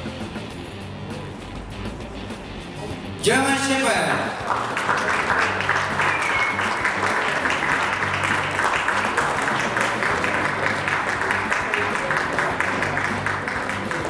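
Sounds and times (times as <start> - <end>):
background music with bass: 0.0 - 14.0
audience applauding: 4.1 - 14.0.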